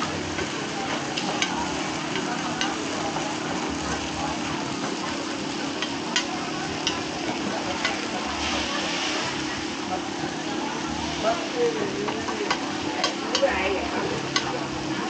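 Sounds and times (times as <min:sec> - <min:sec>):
food sizzling in hot oil: 0:00.0 - 0:15.0
utensil clicking against pan: 0:01.1 - 0:03.2, 0:05.8 - 0:08.1, 0:12.1 - 0:13.6, 0:14.3 - 0:14.6.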